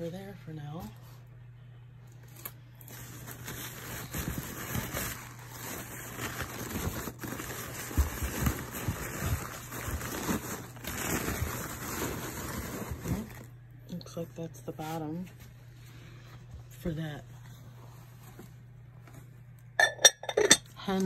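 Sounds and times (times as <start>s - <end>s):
packing material rustling and crackling: 2.2s - 13.5s.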